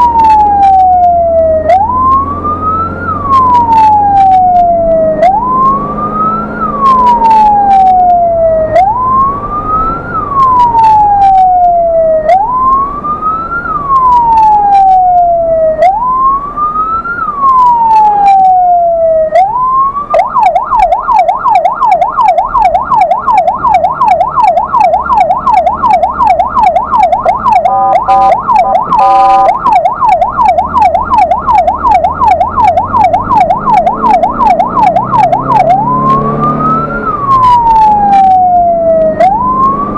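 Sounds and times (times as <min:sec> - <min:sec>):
ambulance siren: 0:00.0 - 0:39.9.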